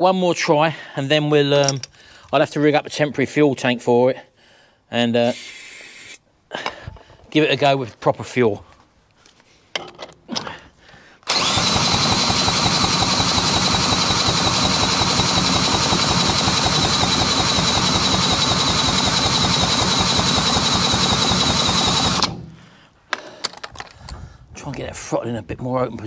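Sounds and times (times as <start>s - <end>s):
cordless drill whine: 11.3s - 22.4s
engine turning over: 11.3s - 22.5s.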